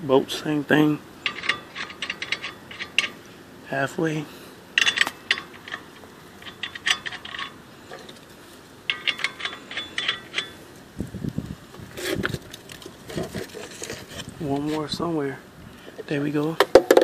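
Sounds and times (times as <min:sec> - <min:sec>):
lug nuts clicking on threads: 0:01.2 - 0:03.2, 0:04.8 - 0:10.7.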